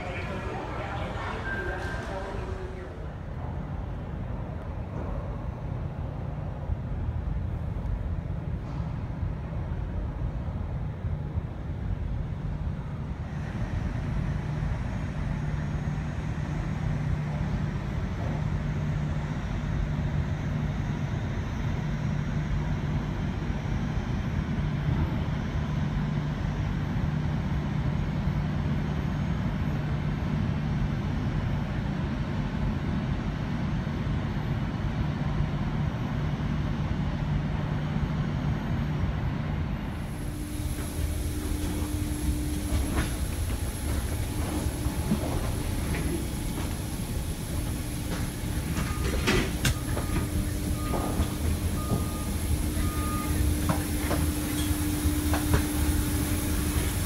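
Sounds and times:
muffled jet aircraft rumble: 39.9 - 57.0.

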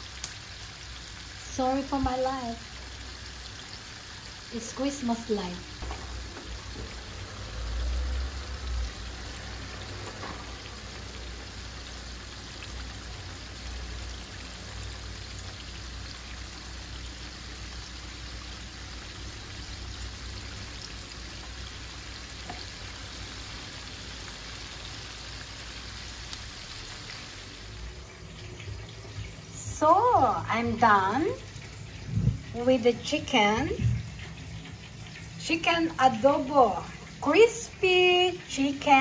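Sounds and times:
oil sizzling deep-frying chicken: 0.0 - 39.0
low rumble: 32.0 - 32.6.

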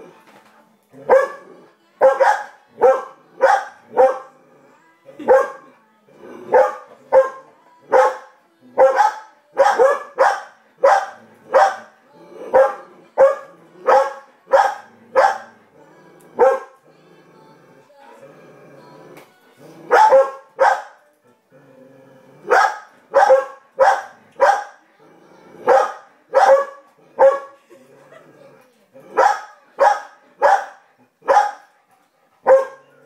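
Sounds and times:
faint cartoon soundtrack: 0.0 - 33.0
dog barking: 1.1 - 1.4, 2.0 - 4.3, 5.2 - 5.7, 6.5 - 8.2, 8.8 - 11.9, 12.5 - 15.5, 16.4 - 16.8, 19.9 - 21.0, 22.5 - 24.8, 25.7 - 27.6, 29.2 - 31.7, 32.4 - 32.9.

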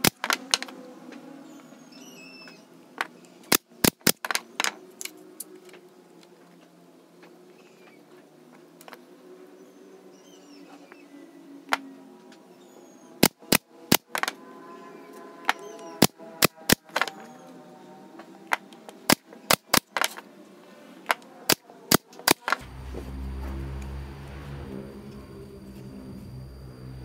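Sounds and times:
nail gun firing into wood: 0.0 - 0.7, 3.5 - 4.8, 13.2 - 14.3, 16.0 - 17.1, 19.0 - 20.2, 21.5 - 22.6
low machine hum: 22.6 - 27.0.

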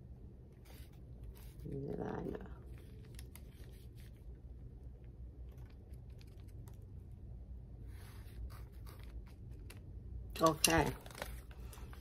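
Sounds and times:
paper rustling: 2.6 - 4.4, 7.9 - 12.0.

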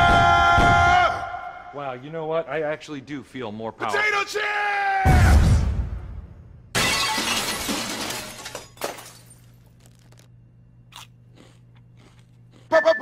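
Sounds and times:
glass shattering: 6.8 - 9.8.

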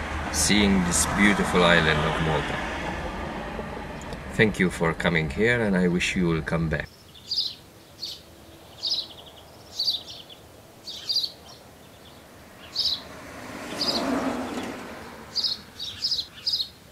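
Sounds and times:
rushing noise: 0.0 - 6.8
outdoor background hiss: 0.0 - 16.9
bird chirping: 6.8 - 16.9.

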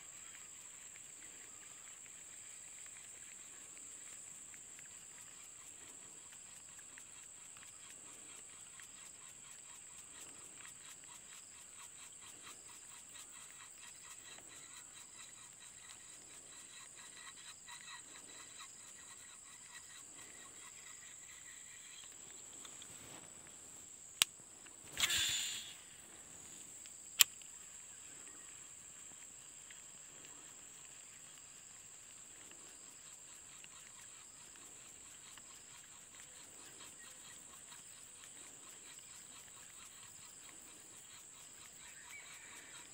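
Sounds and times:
high insect drone: 0.0 - 42.9
fishing reel reeling: 24.9 - 26.0.

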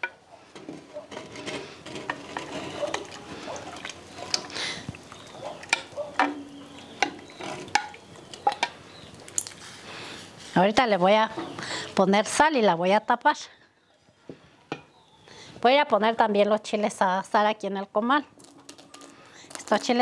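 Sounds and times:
spatula scraping earthenware bowl: 0.6 - 3.3.

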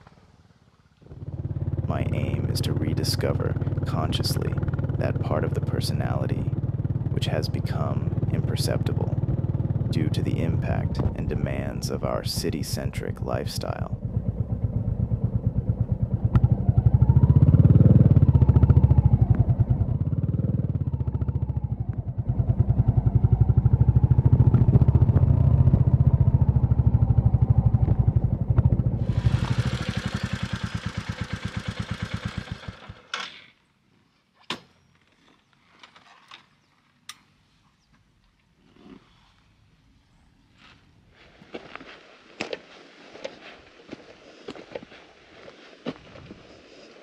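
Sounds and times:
motorcycle engine thumping: 10.8 - 11.4, 13.9 - 32.6.

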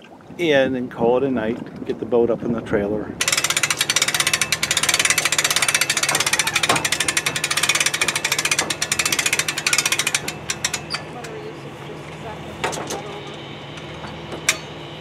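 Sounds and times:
small engine puttering: 3.2 - 14.6.

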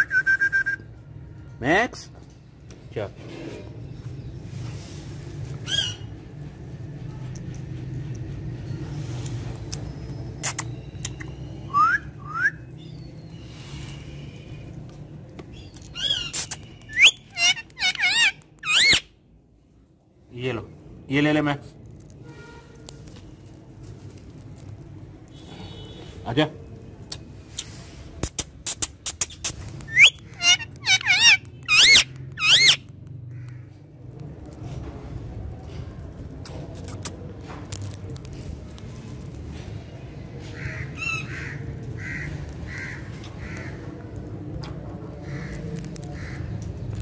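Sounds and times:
parrot warbling calls: 16.0 - 19.0, 29.9 - 32.8.

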